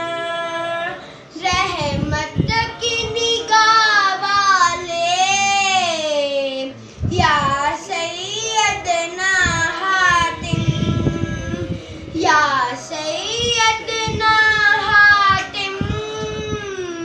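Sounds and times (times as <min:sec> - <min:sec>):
boy singing unaccompanied: 0:00.0 - 0:17.0.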